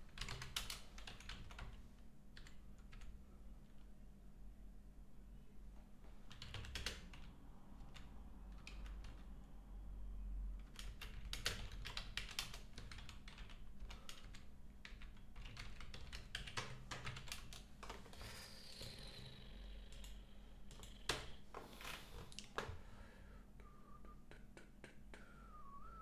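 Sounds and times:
typing on computer keyboard: 0.1 - 1.8, 6.3 - 9.3, 10.6 - 18.1, 19.8 - 21.4.

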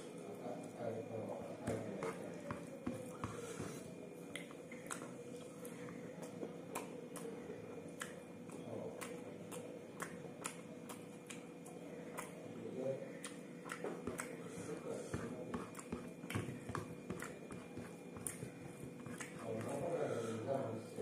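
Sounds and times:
wet chewing and lip smacks: 4.3 - 12.5, 13.2 - 14.4, 17.2 - 19.8
fingers squishing rice: 15.2 - 20.0.

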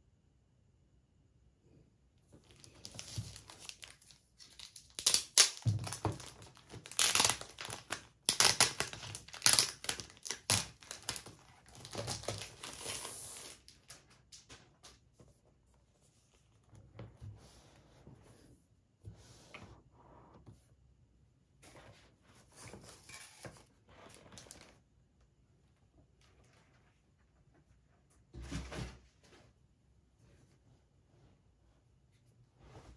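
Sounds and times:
plastic wrapping crinkling: 2.4 - 14.5.

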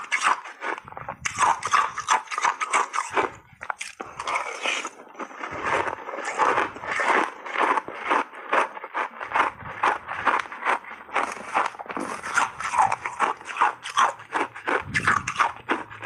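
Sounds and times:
ice chunks crunching: 0.0 - 16.0.

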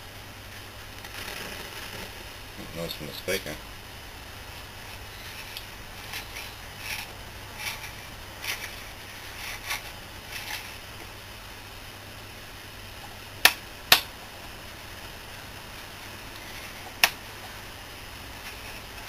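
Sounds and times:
radio speaker crackling: 0.5 - 11.2.

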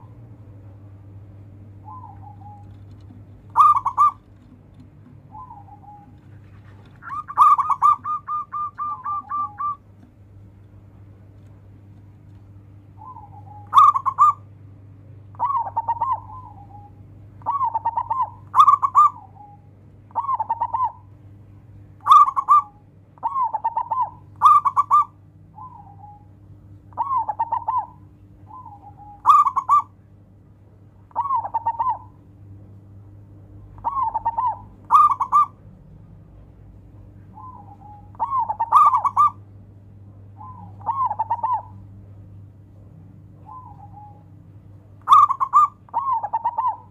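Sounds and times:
dove cooing: 1.6 - 10.0, 11.9 - 14.5, 15.3 - 21.1, 22.0 - 30.0, 31.1 - 32.3, 33.6 - 36.0, 37.0 - 39.5, 40.3 - 42.0, 43.4 - 46.9.

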